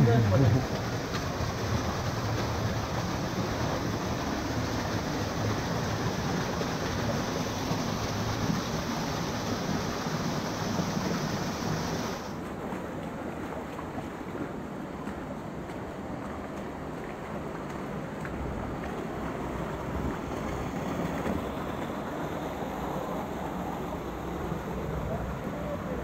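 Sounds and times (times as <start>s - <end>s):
waterfall rushing over boulders: 0.0s - 12.5s.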